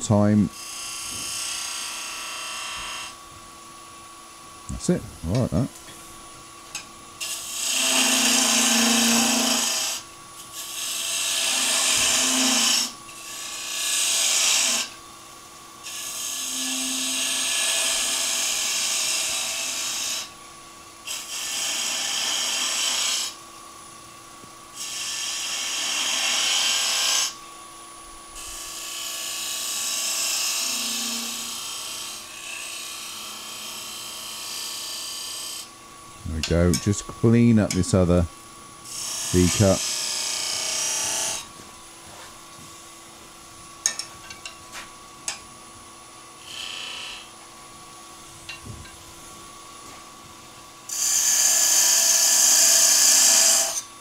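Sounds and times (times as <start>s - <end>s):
lathe tool scraping wood: 7.2s - 15.0s, 15.8s - 20.3s, 21.1s - 23.4s, 24.8s - 27.4s, 28.4s - 35.7s, 36.3s - 41.5s, 46.4s - 47.3s, 50.9s - 53.8s.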